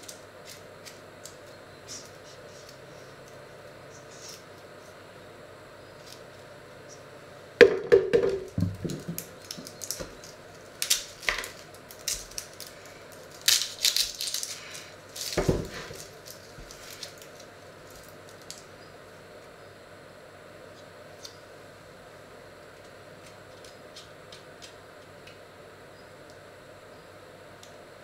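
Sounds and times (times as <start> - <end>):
dry onion skins crackling: 0.0 - 5.0, 8.4 - 18.8, 22.7 - 25.4.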